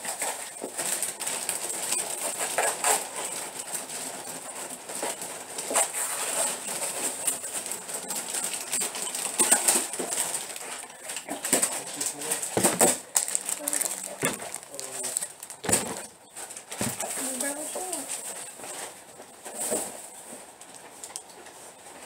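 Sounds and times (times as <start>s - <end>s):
bags rustling: 0.6s - 18.9s
knocks and clinks of goods: 11.6s - 17.2s.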